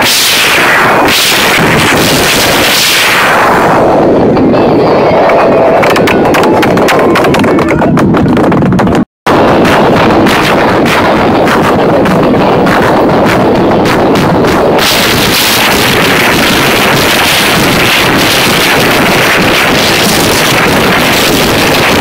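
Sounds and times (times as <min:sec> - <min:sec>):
distorted live band and crowd: 0:00.0 - 0:22.0.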